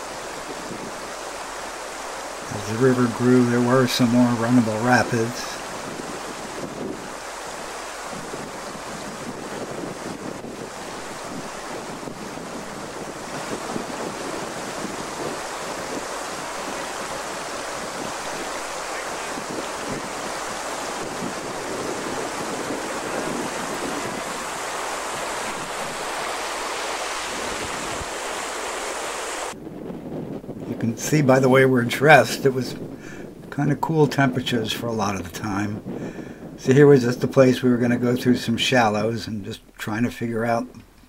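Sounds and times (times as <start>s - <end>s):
wind on microphone: 0.0s - 38.7s
river rapids rushing over rocks: 13.0s - 29.6s.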